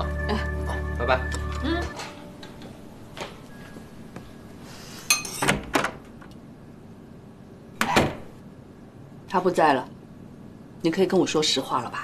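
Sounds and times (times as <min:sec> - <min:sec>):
tableware clinking: 0:05.1 - 0:05.6.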